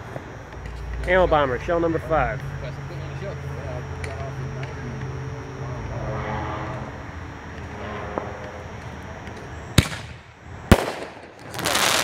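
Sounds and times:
low background hum: 0:00.0 - 0:12.0
firework launch bang: 0:09.8 - 0:12.0
firework shell bursting overhead: 0:09.8 - 0:12.0.

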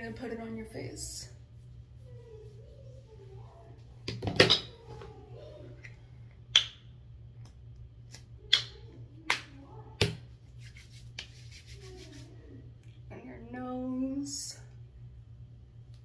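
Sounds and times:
palms rubbing lotion: 0:10.4 - 0:12.5.

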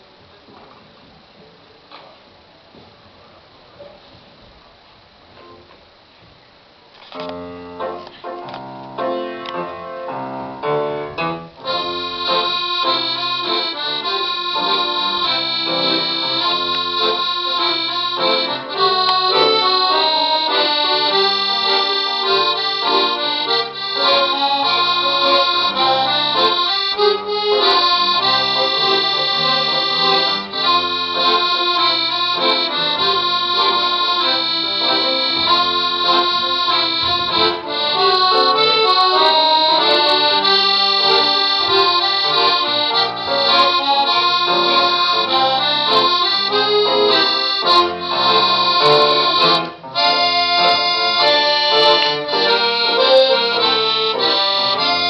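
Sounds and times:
accordion playing chords: 0:07.1 - 0:55.0.

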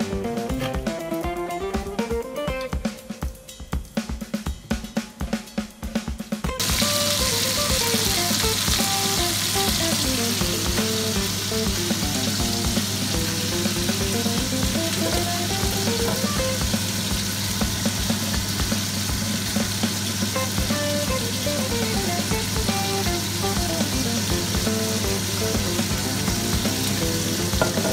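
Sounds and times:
background music with beat: 0:00.0 - 0:27.9
food sizzling in frying pan: 0:06.5 - 0:27.9.

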